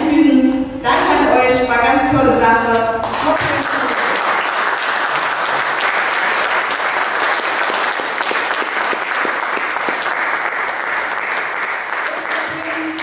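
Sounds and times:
audience applause: 3.0s - 13.0s.

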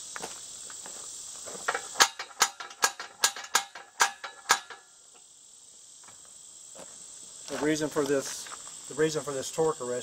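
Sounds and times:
sharp metallic knocks: 1.7s - 5.0s.

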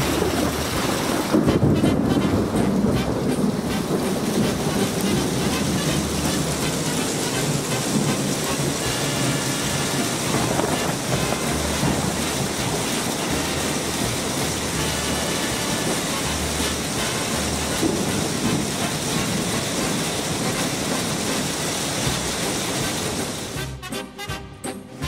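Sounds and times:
heavy rain pouring: 0.0s - 23.9s
low rumbles: 0.0s - 25.0s
music: 1.4s - 19.3s, 22.8s - 25.0s.

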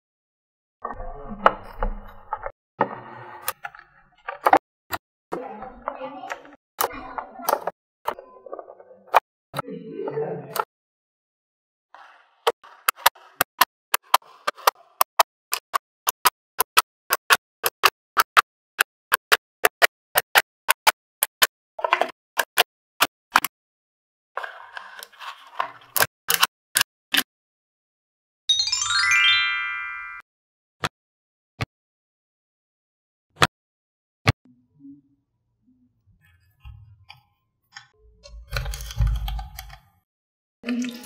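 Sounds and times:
rising chime-like sound effect: 28.5s - 30.2s.

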